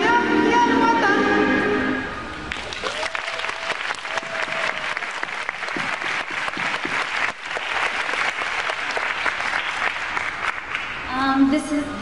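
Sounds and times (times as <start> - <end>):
crowd applauding: 2.5 - 11.1.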